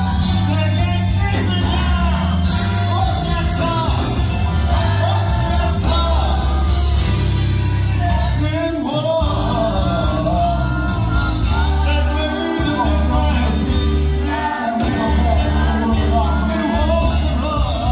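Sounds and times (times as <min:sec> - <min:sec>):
band playing: 0:00.0 - 0:17.9
church choir singing: 0:03.9 - 0:07.3, 0:09.2 - 0:17.9.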